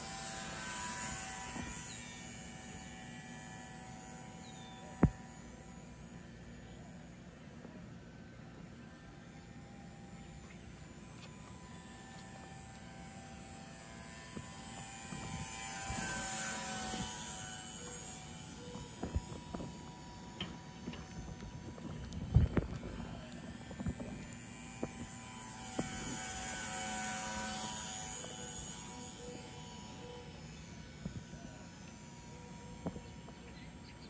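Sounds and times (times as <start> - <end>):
small electric motor and propeller whining: 0.0 - 34.0.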